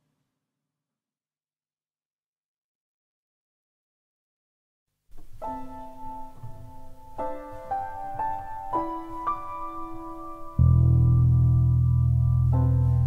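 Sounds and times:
slow keyboard melody: 0:05.2 - 0:13.0.

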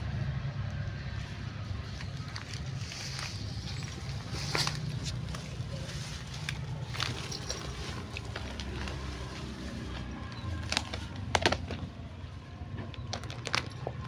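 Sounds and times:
leaves and twigs rustling: 0:01.1 - 0:12.1
twigs snapping: 0:06.2 - 0:11.9.

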